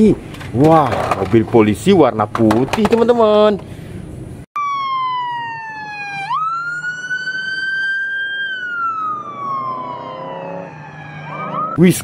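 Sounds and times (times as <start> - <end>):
police siren wailing: 4.6 - 11.8.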